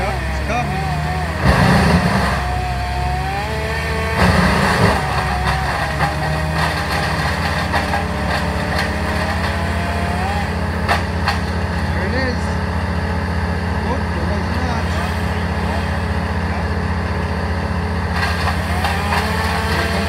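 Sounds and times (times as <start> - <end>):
petrol engines droning: 0.0 - 20.0.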